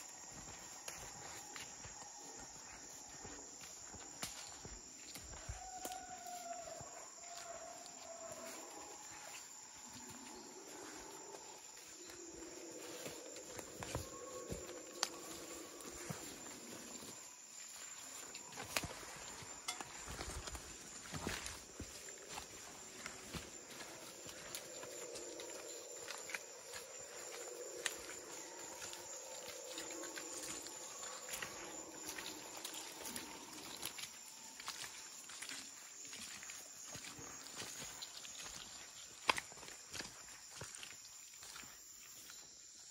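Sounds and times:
soft footsteps on forest floor: 0.0 - 42.9
wavering animal calls: 23.7 - 35.2.

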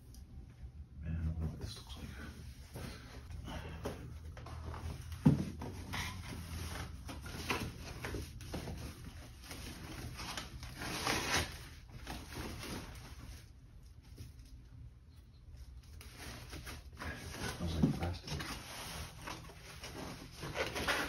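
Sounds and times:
packing paper rustling: 4.8 - 14.6, 15.7 - 21.0.

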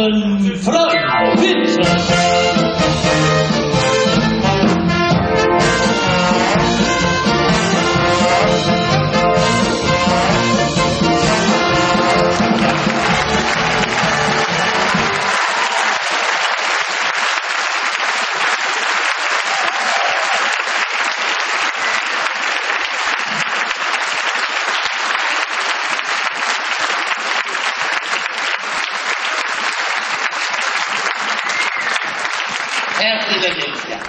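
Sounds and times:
audience applauding: 5.8 - 34.0.

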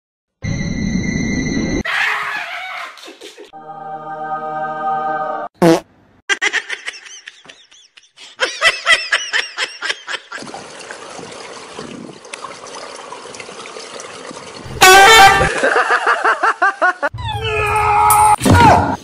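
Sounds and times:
high-pitched laughter: 1.9 - 3.5, 6.3 - 10.4
pool water lapping and splashing: 9.5 - 16.6.

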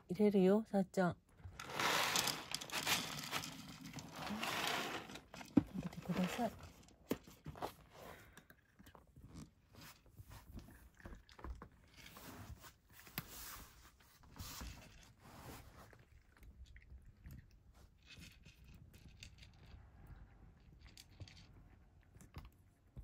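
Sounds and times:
cat crunching dry kibble: 1.4 - 7.4.

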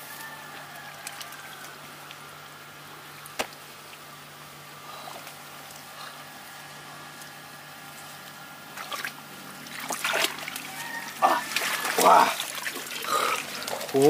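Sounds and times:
water sloshing and splashing: 7.3 - 14.0.

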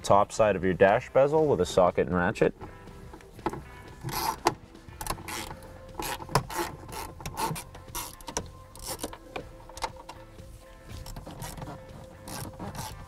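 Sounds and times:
socket ratchet clicking: 3.5 - 10.2, 11.0 - 13.0.

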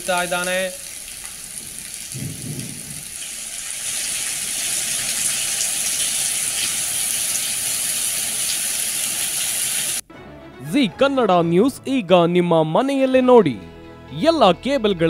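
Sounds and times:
heavy rain hissing: 0.0 - 10.0
tyres spraying through water: 0.0 - 10.0.

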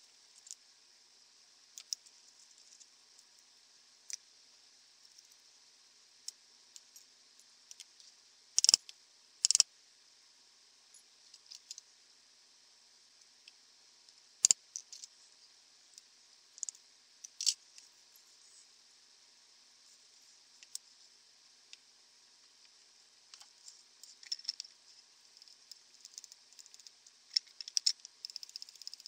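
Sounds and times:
metal parts clinking on stone: 9.4 - 9.6, 27.3 - 28.0.

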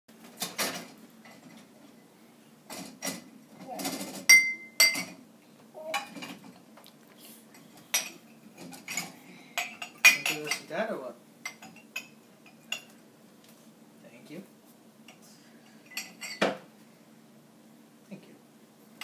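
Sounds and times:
glasses and bottles clinking: 3.8 - 5.2, 7.9 - 10.7, 15.8 - 16.6.

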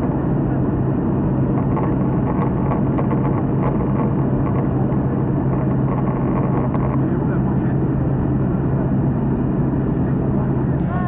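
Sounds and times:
light aircraft engine droning: 0.0 - 11.0.

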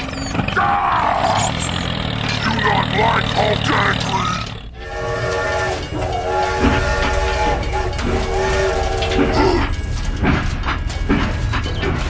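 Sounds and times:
sharp clattering knocks: 1.5 - 12.0
toy train electronic horn: 2.4 - 10.0.

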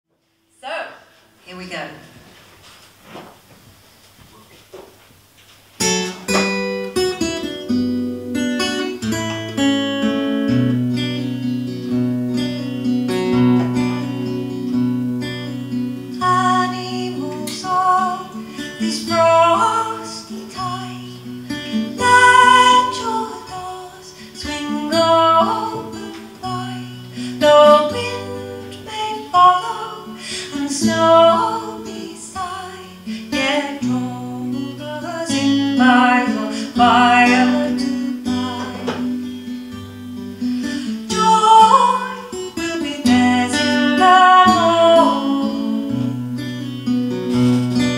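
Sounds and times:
acoustic guitar: 0.1 - 47.9
woman singing: 16.1 - 39.3, 40.6 - 46.2.

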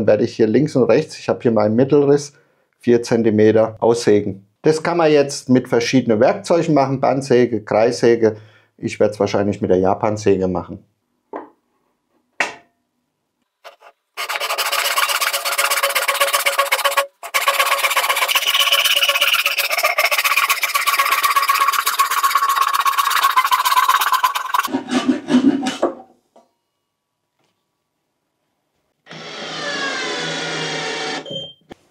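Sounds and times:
hand saw rasping through wood: 13.7 - 21.9, 24.4 - 26.0.

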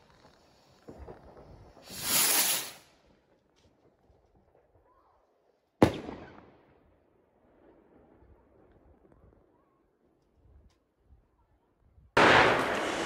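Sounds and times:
firework rocket whoosh: 0.4 - 2.9, 12.2 - 13.0
firework bang: 12.2 - 13.0.

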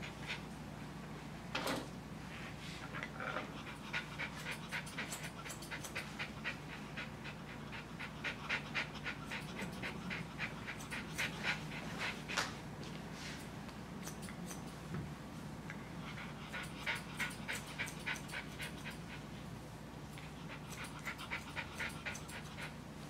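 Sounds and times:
dog panting quickly: 3.5 - 12.6, 16.0 - 19.5, 20.1 - 22.9.

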